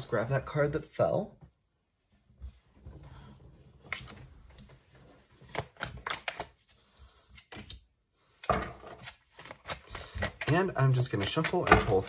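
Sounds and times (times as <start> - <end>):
cards shuffled by hand: 3.8 - 12.0.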